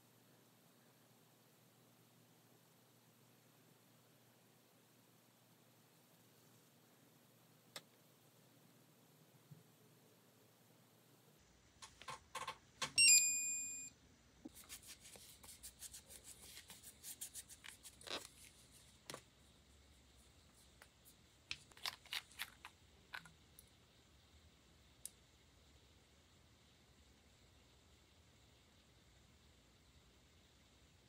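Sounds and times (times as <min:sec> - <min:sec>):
electronic beeping chime: 0:13.0 - 0:13.9
wipe rubbing a nail: 0:14.5 - 0:19.0.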